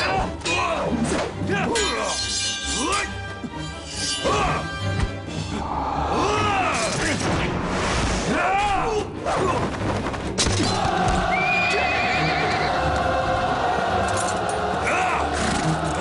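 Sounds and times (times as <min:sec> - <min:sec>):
men yelling and shouting: 0:04.1 - 0:04.9, 0:05.6 - 0:07.3, 0:10.6 - 0:16.0.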